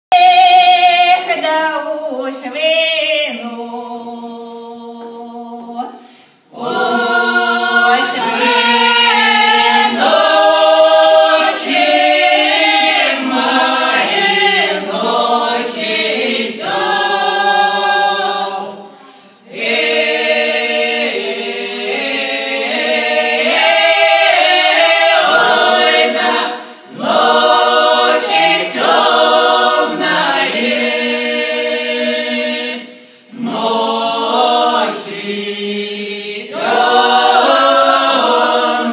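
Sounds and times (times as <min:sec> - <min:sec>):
folk choir singing a cappella: 0:00.1 - 0:38.9.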